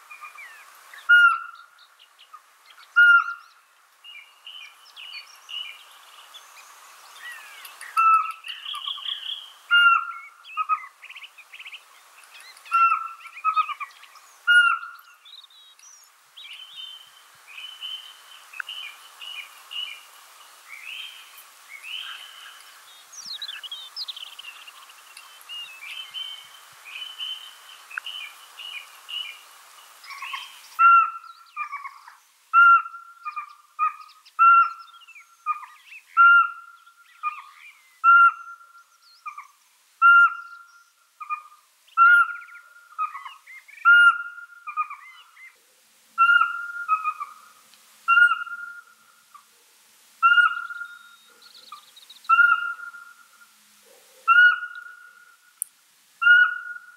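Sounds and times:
hiss: 0:17.3 - 0:30.9
owl whistled hoots: 0:30.1 - 0:45.3, 0:46.2 - 0:47.4, 0:48.1 - 0:49.0, 0:50.2 - 0:51.4, 0:52.3 - 0:53.4, 0:54.3 - 0:55.4, 0:56.2 - 0:56.9.

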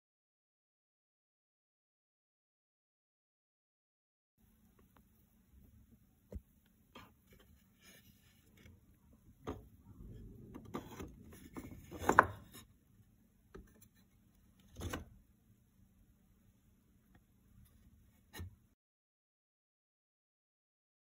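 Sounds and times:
wooden boards knocking and rubbing: 0:10.5 - 0:12.6.

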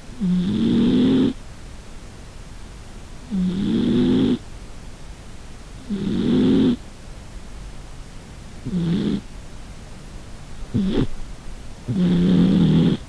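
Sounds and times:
cat snoring: 0:00.1 - 0:01.4, 0:03.2 - 0:04.4, 0:05.8 - 0:06.8, 0:08.6 - 0:09.3, 0:10.7 - 0:11.2, 0:11.9 - 0:13.0.

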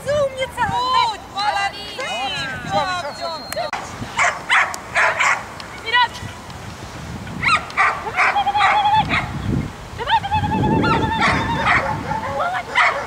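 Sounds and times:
dog yelping: 0:07.4 - 0:09.3, 0:10.8 - 0:13.0.

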